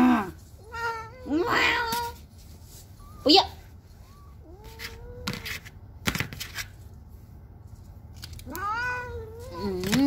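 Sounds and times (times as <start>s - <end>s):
cat meowing: 8.4s - 10.0s.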